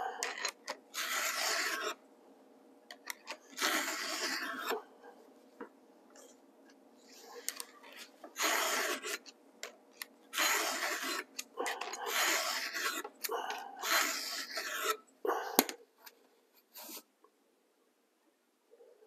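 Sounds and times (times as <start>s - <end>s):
files rasping on chainsaw chain: 10.4s - 15.0s.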